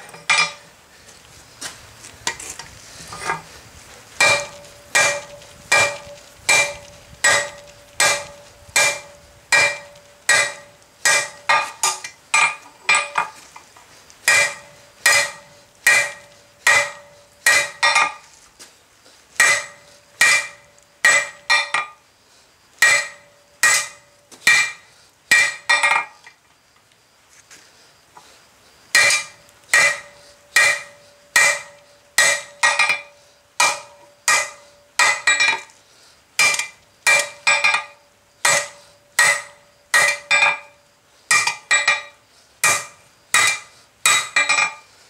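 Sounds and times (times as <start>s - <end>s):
hammer striking steel on anvil: 0.0s - 0.7s, 4.2s - 13.3s, 14.3s - 18.2s, 19.4s - 22.0s, 22.8s - 26.1s, 29.0s - 35.7s, 36.4s - 44.8s.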